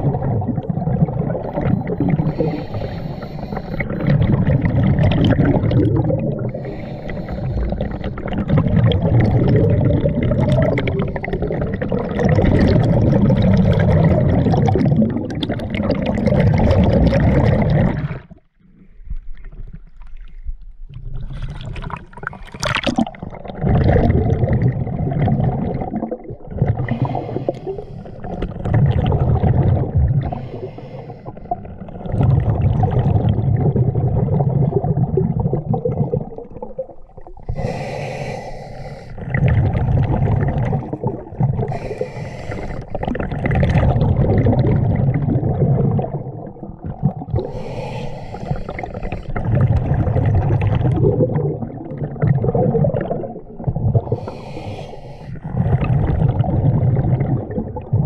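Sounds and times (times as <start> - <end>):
exhaled bubbles burbling: 0.0 - 18.4, 19.2 - 58.0
regulator inhale hiss: 2.3 - 3.9, 6.6 - 8.2, 26.9 - 28.2, 30.3 - 31.5, 37.5 - 39.2, 41.7 - 43.0, 47.5 - 49.4, 54.1 - 55.4.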